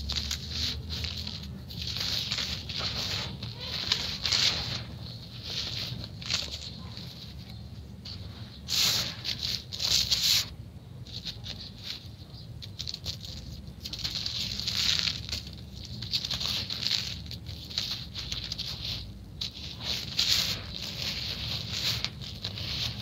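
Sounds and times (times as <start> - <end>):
gritty sand crunching and rustling: 12.7 - 23.0.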